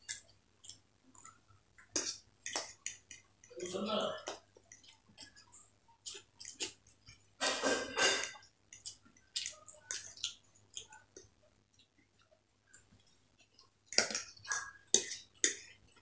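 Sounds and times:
chewing sounds: 0.0s - 7.6s, 8.2s - 16.0s
forks on plates: 7.4s - 8.5s.

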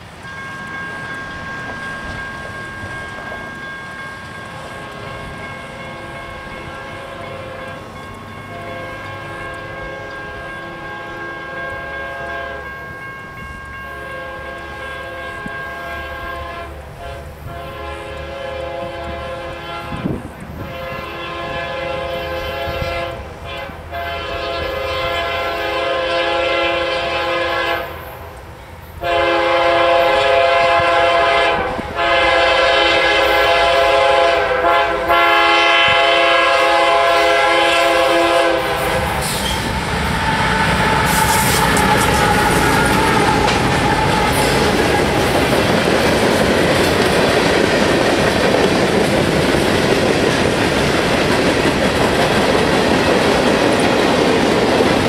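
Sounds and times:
locomotive rumble passing: 0.0s - 55.0s
train air horn blasts: 5.8s - 13.0s, 13.6s - 28.2s, 29.0s - 45.6s.

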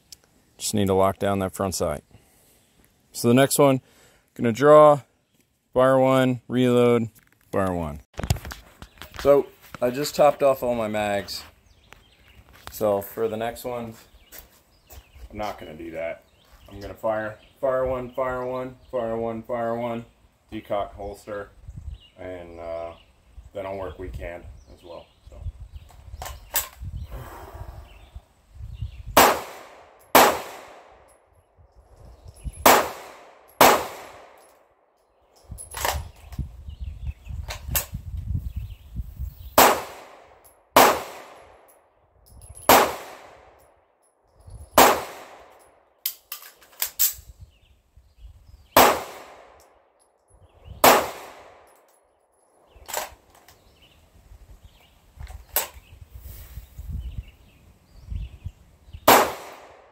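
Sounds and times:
pistol shots echoing: 29.2s - 31.0s, 32.6s - 34.4s, 39.6s - 41.4s, 42.7s - 43.4s, 44.8s - 45.5s, 48.8s - 49.6s, 50.8s - 51.7s, 59.1s - 59.9s.

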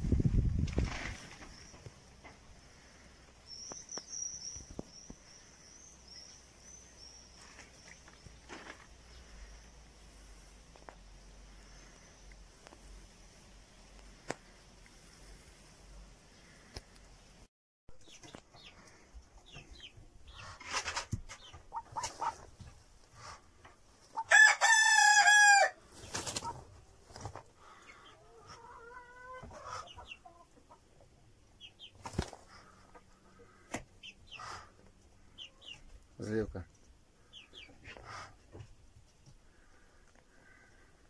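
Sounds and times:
fowl clucking: 20.4s - 22.5s
rooster crowing: 24.2s - 25.8s.

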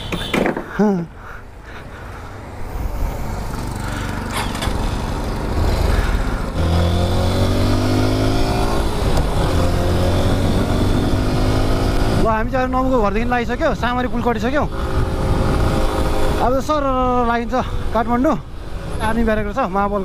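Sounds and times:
motorcycle engine accelerating: 3.3s - 12.2s, 14.7s - 16.5s.

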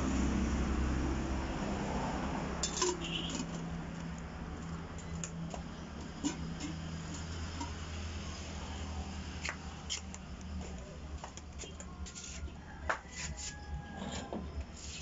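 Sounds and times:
kitchenware clinking: 2.6s - 3.6s, 6.0s - 7.9s.

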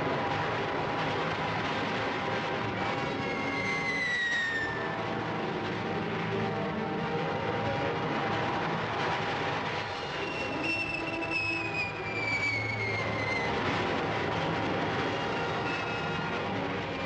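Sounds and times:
rocket rushing roar: 0.0s - 6.4s
high whine sliding down: 7.3s - 17.0s.

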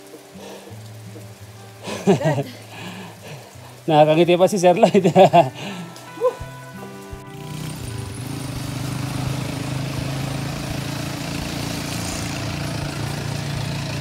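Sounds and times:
vehicle engine idling: 7.2s - 14.0s.

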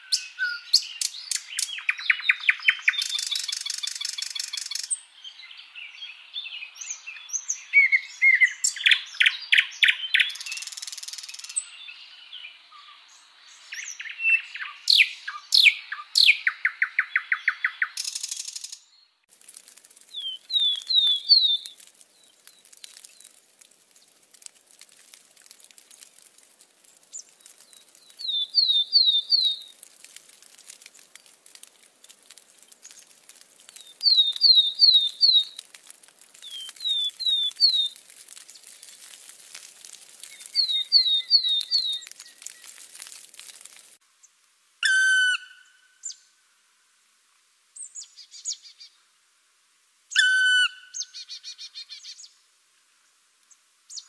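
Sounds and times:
birds chirping and trilling: 27.1s - 29.6s, 40.2s - 42.8s.

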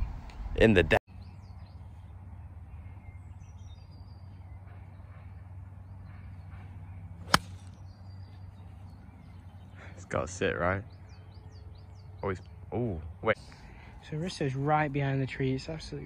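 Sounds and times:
golf club striking ball: 7.2s - 7.8s.

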